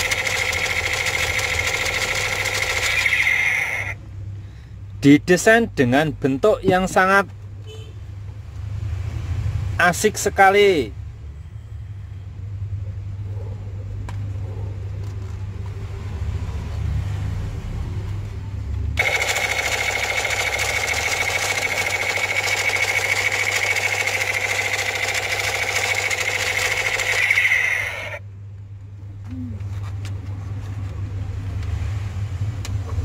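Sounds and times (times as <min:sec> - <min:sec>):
toy gun rapid rattle: 0:00.0 - 0:04.0, 0:19.0 - 0:28.2.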